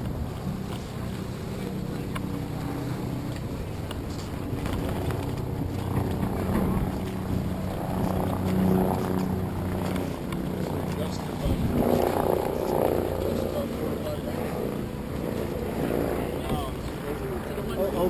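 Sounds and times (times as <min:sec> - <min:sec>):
wind noise on microphone: 0:00.0 - 0:13.3.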